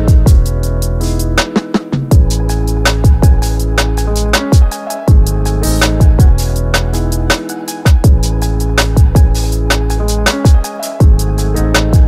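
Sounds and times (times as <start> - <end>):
kick drums booming: 0.1 - 0.6, 2.1 - 2.4, 3.0 - 3.5, 4.6 - 5.3, 6.0 - 6.4, 7.9 - 8.3, 9.0 - 9.4, 10.5 - 11.2.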